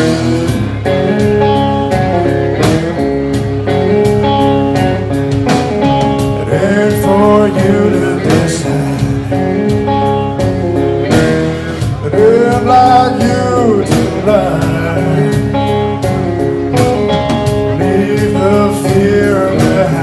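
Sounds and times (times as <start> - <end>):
blues guitar: 0.0 - 20.0.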